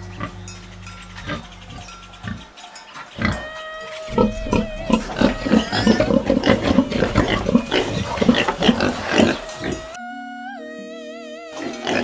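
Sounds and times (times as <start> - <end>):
pigs grunting and squealing: 0.0 - 10.0, 11.5 - 12.0.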